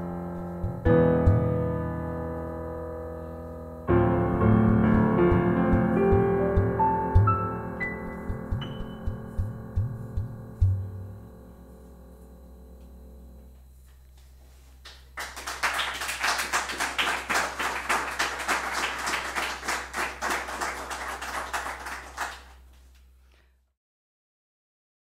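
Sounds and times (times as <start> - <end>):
sustained music notes: 0.0 - 14.8
small audience applauding: 14.8 - 23.0.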